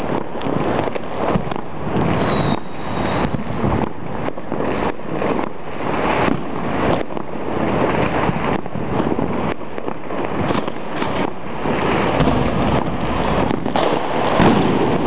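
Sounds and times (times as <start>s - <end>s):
fireworks and firecrackers banging: 0.0s - 15.0s
high firework whistle: 2.0s - 3.9s, 12.8s - 15.0s.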